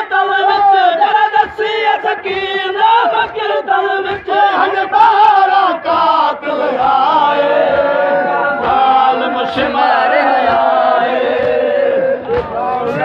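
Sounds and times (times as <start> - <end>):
man singing into a microphone: 0.0 - 7.4
men chanting in unison: 0.0 - 13.0.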